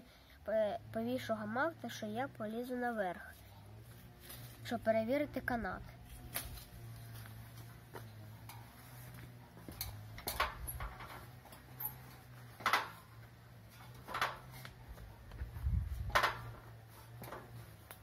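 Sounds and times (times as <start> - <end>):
ladder knocking and clicking: 9.7 - 11.9, 12.6 - 13.1, 13.8 - 14.7, 16.0 - 16.6.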